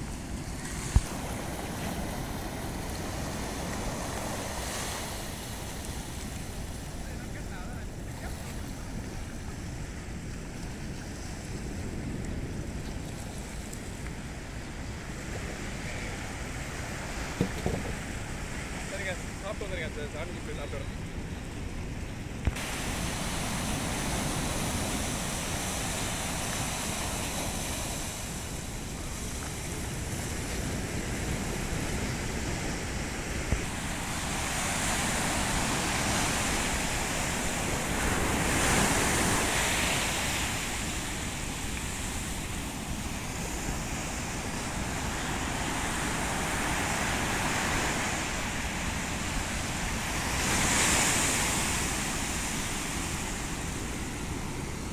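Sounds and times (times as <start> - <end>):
wind rumbling on microphone: 0.0 - 19.5, 20.3 - 54.9
sea surf breaking on beach: 0.0 - 54.9
brief knocks: 17.4 - 18.0.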